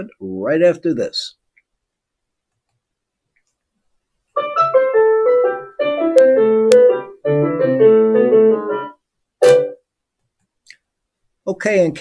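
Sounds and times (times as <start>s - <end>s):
piano jingle: 4.4s - 9.8s.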